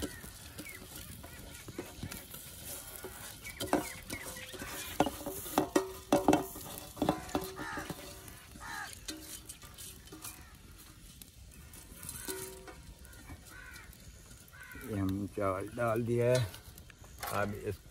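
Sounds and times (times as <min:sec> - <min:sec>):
steel platter clanking on pot: 0:00.0 - 0:11.0, 0:11.8 - 0:13.5.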